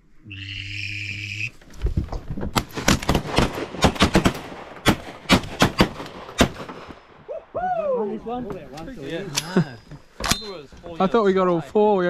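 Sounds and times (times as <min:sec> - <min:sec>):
shotgun shots: 0:02.6 - 0:07.0.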